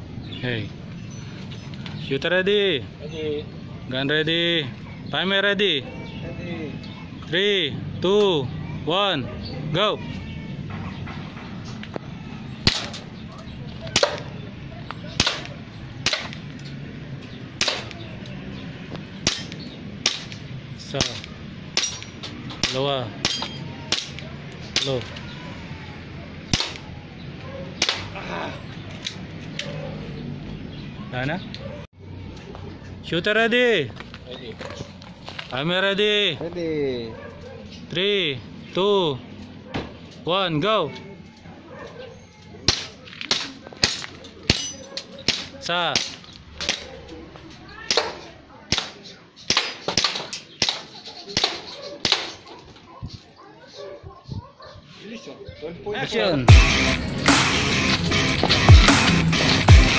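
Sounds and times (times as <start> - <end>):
airsoft pistol cracks: 12.6 - 13.0, 14.0 - 14.4, 15.2 - 16.4, 17.6 - 18.0, 19.2 - 20.4, 21.0 - 25.0, 26.5 - 26.9, 27.8 - 28.1, 42.7 - 44.7, 47.9 - 52.4.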